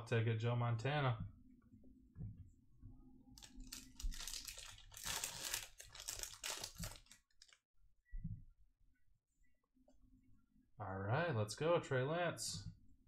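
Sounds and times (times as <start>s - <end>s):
wrapper tearing and crinkling: 3.4s - 7.6s.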